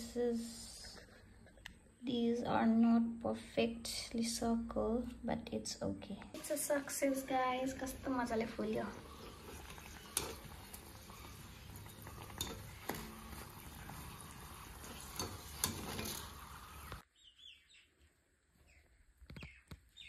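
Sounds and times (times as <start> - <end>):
oil sizzling: 6.4 - 17.0
birds chirping: 7.7 - 20.0.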